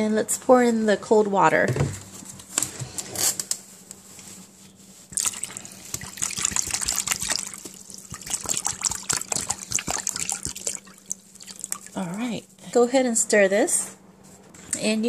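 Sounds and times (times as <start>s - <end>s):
water pouring into a bowl: 5.1s - 12.0s.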